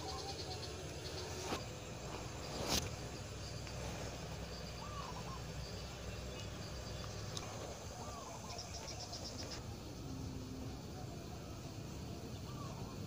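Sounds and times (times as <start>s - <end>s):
bird chirps: 0.0s - 1.6s, 4.5s - 9.6s
fast insect ticking: 0.0s - 9.6s.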